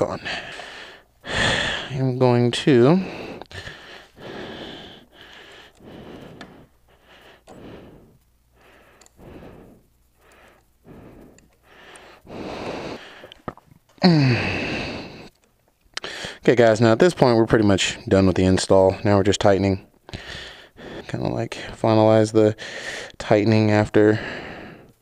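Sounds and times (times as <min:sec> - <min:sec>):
person speaking: 0:00.0 - 0:11.4
person breathing close to microphone: 0:00.0 - 0:15.4, 0:16.0 - 0:16.4, 0:20.1 - 0:21.8, 0:22.6 - 0:23.2, 0:24.1 - 0:25.0.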